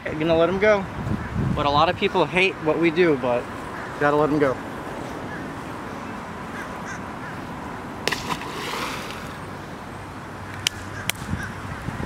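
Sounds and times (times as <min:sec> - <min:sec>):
fish splashing into water: 0:08.0 - 0:09.6.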